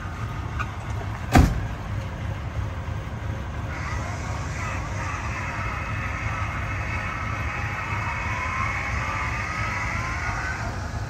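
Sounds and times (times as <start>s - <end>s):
car engine idling: 0.0s - 11.0s
convertible top latch clunk: 0.6s - 1.7s.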